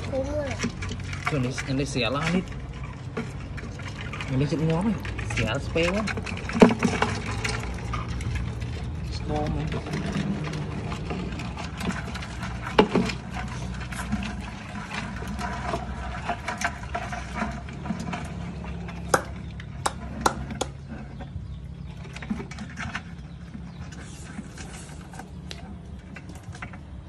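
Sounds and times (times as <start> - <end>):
water sloshing in a plastic drum: 0.0 - 27.0
knocks and clicks against plastic: 19.0 - 21.4.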